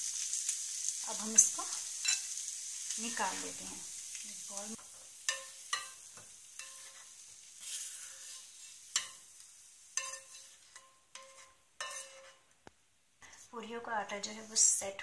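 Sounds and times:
faint sizzle from pan: 0.0 - 15.0
spatula scraping a frying pan: 1.2 - 3.7, 4.9 - 12.5.

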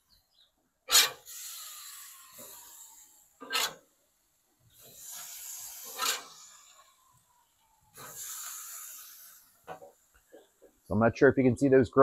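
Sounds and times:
meat sizzling: 1.2 - 3.7, 4.8 - 7.1, 7.9 - 10.1.

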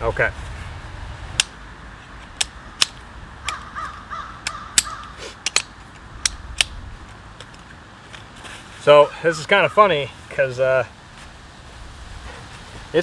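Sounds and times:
faint bird calls: 3.4 - 5.4
chair poles clicking together: 4.4 - 7.7.

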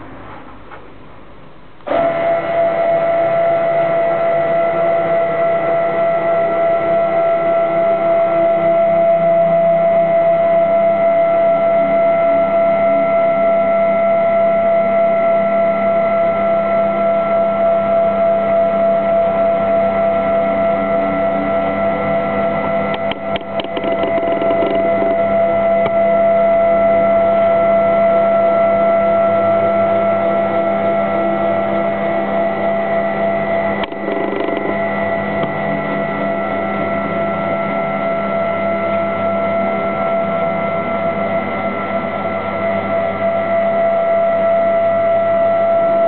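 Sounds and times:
stepper motors whining: 20.2 - 26.0, 30.2 - 40.0.

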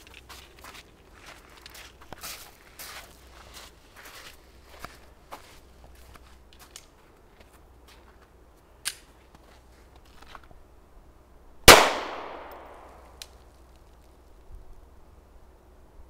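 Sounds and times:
handgun shot with echo: 11.7 - 13.2.

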